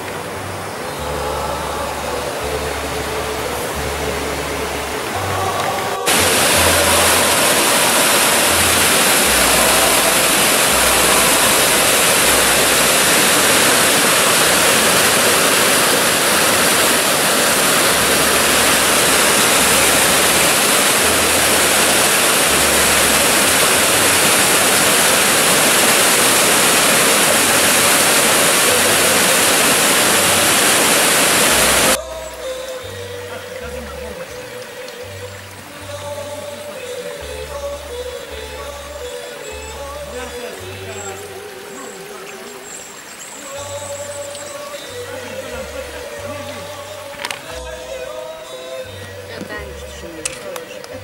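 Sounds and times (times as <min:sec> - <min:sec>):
faint background music: 0:00.0 - 0:15.7, 0:31.6 - 0:51.0
stream rushing over rocks: 0:00.0 - 0:51.0.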